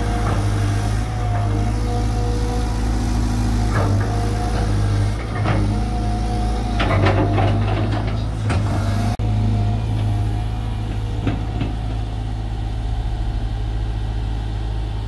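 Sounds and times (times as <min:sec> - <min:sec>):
excavator diesel engine running: 0:00.0 - 0:15.0
steady whine: 0:00.0 - 0:15.0
metal knocks and clanks: 0:06.7 - 0:08.9, 0:09.9 - 0:14.6.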